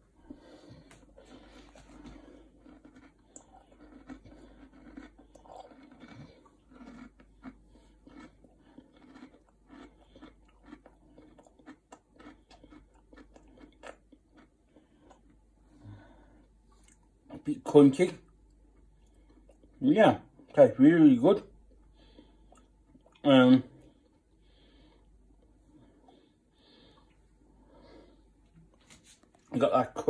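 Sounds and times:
person chewing crunchy cereal: 0.0 - 17.5, 18.2 - 20.6, 21.5 - 30.0.

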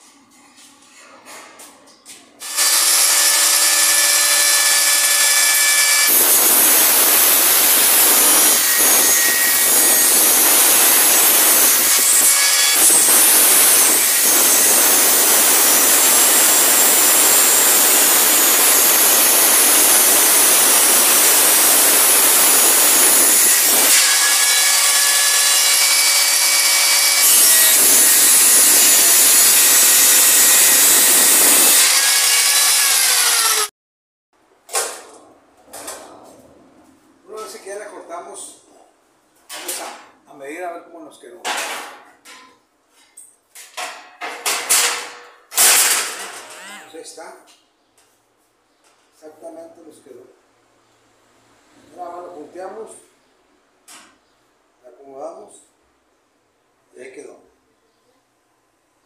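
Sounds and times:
angle grinder cutting sheet metal: 2.4 - 33.7, 44.5 - 47.0.

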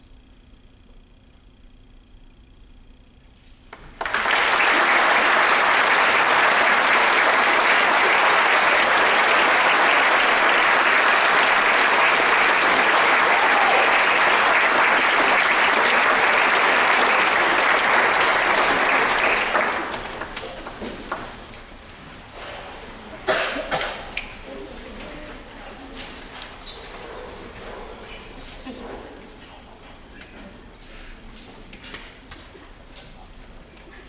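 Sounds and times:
audience applauding: 3.7 - 21.4.

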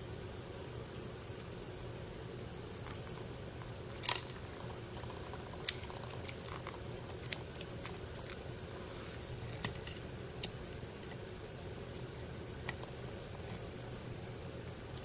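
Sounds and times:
faint steady hum: 0.0 - 15.0
metal parts rattling: 4.0 - 4.4.

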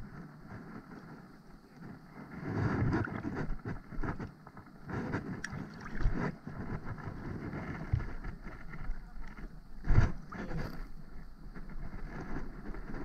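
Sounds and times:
water sloshing around wading legs: 2.2 - 10.9.

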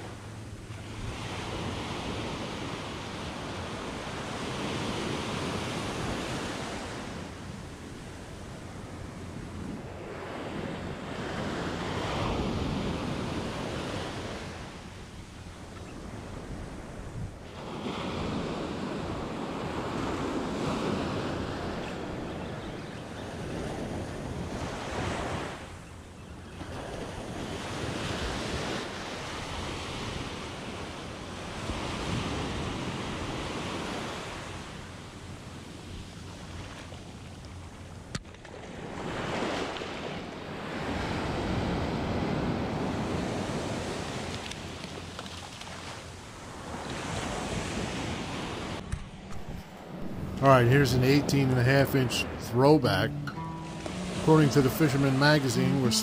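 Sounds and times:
small waves breaking on beach: 0.0 - 56.0
wind rumbling on microphone: 46.1 - 50.7.

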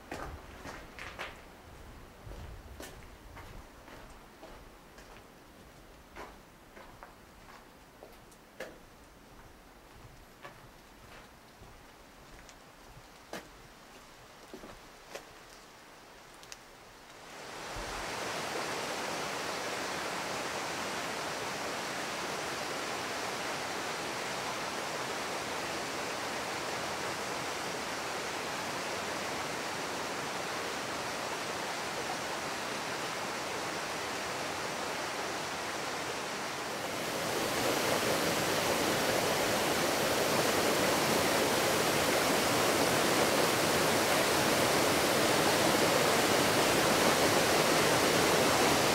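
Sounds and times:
faint clicks: 16.4 - 17.2
river water rushing: 17.2 - 48.9.

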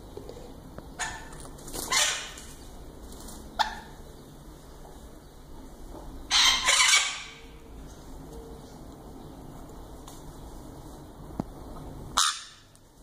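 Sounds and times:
parrot screeching: 1.9 - 2.4, 6.3 - 7.4, 12.2 - 12.6.

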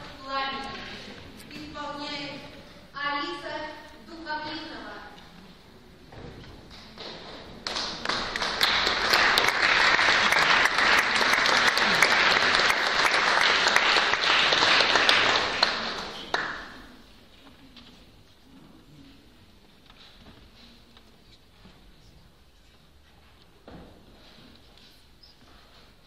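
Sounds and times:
audience applauding: 7.0 - 16.7.

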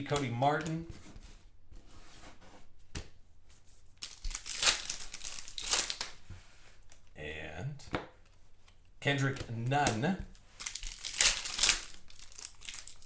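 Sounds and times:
foil wrapper crinkling: 4.0 - 6.1, 10.6 - 13.0.

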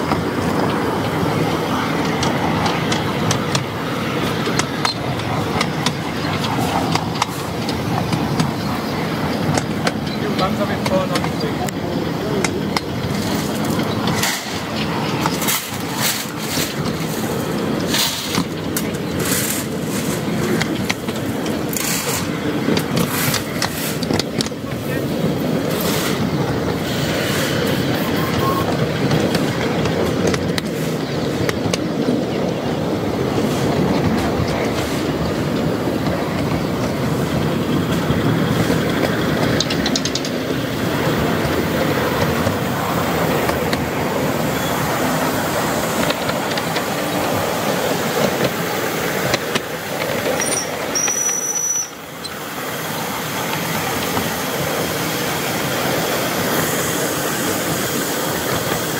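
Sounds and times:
train wheels clattering on rails: 0.0 - 58.9
high-pitched squeal: 27.7 - 28.8.

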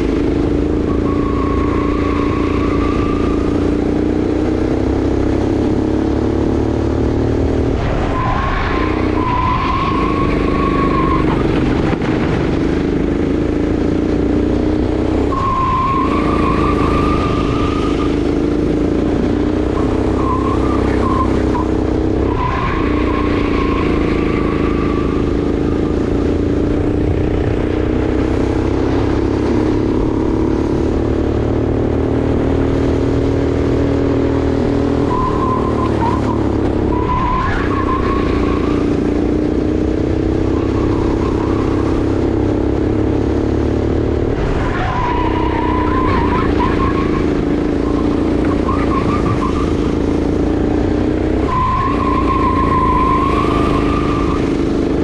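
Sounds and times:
kart engine running hard: 0.0 - 55.0
tyre squeal: 0.4 - 4.2, 7.8 - 11.8, 15.1 - 26.4, 34.7 - 39.4, 40.0 - 42.4, 44.5 - 55.0.

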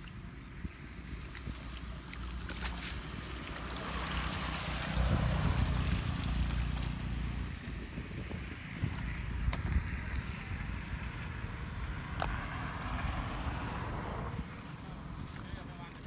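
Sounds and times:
wind rumble on microphone: 0.0 - 16.0
water splashing off a net: 1.1 - 7.6.

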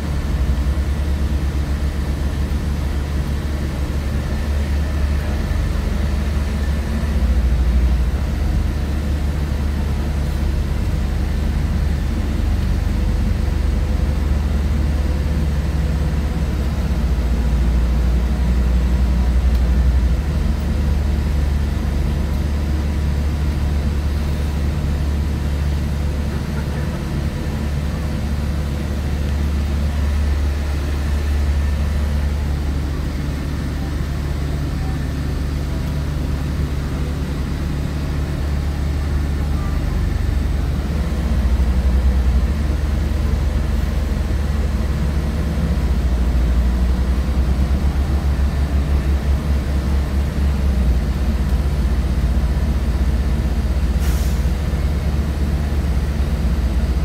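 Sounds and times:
large vehicle engine rumbling: 0.0 - 57.0
brief hiss: 54.0 - 54.5.

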